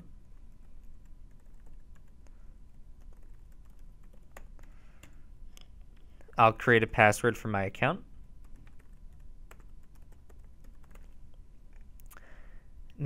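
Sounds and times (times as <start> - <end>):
typing on a computer keyboard: 0.3 - 5.2, 8.4 - 11.2.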